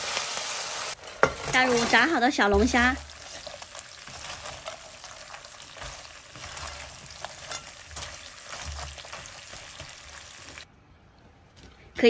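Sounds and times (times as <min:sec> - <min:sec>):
food sizzling in hot oil: 0:00.0 - 0:10.7
spatula scraping and clicking: 0:03.2 - 0:10.6.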